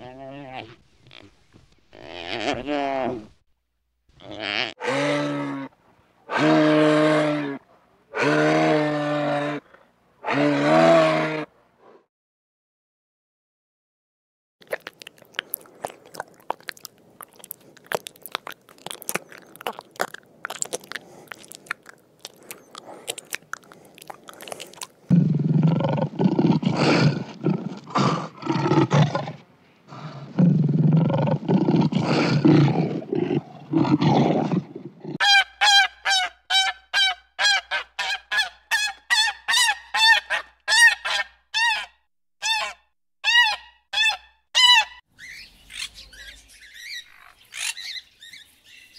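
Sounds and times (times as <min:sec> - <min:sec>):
lion roaring: 0:10.2 - 0:12.0, 0:25.1 - 0:35.2.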